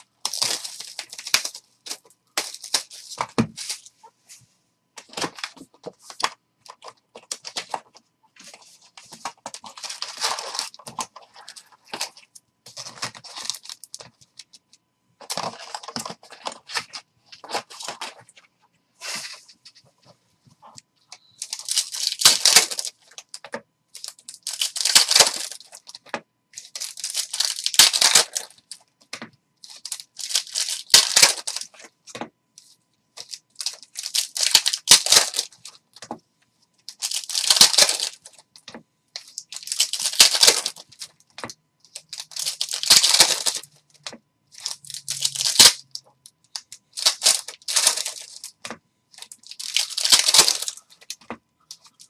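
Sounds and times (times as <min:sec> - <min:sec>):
foil wrappers tearing and crinkling: 0:00.0 - 0:03.9, 0:09.2 - 0:14.0, 0:21.4 - 0:23.3, 0:24.0 - 0:26.0, 0:26.6 - 0:28.7, 0:29.6 - 0:31.8, 0:33.2 - 0:35.7, 0:36.9 - 0:38.4, 0:39.2 - 0:41.1, 0:41.9 - 0:43.8, 0:44.6 - 0:48.6, 0:49.2 - 0:51.2.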